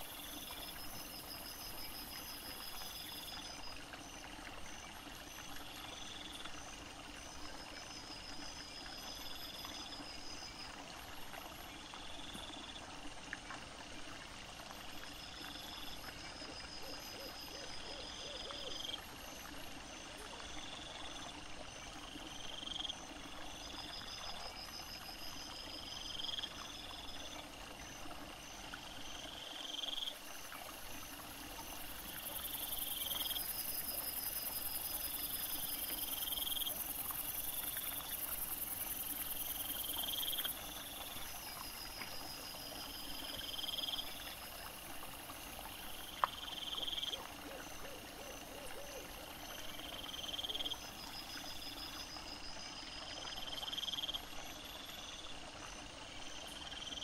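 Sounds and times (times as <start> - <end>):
night insects chirping: 0.0 - 12.8, 14.5 - 57.0
steady high insect hiss: 0.0 - 57.0
pulsed insect trills: 22.3 - 55.8.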